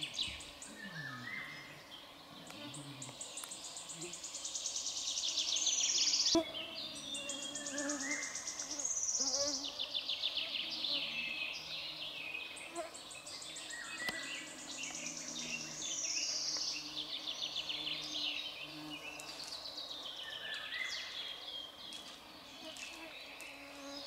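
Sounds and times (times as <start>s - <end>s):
faint insect buzz: 0.0s - 21.4s, 22.0s - 24.0s
songbirds trilling: 0.0s - 24.0s.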